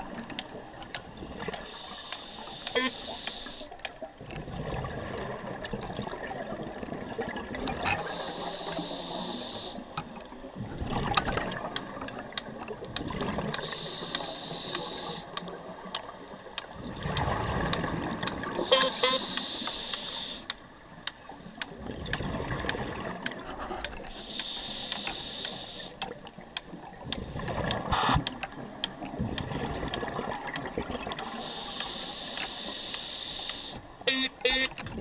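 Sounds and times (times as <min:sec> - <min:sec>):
regulator hissing inhalation: 0:01.7 - 0:03.7, 0:08.0 - 0:09.8, 0:13.6 - 0:15.3, 0:18.6 - 0:20.5, 0:24.1 - 0:26.0, 0:31.3 - 0:33.8
sharp clicks: 0:11.7 - 0:33.8.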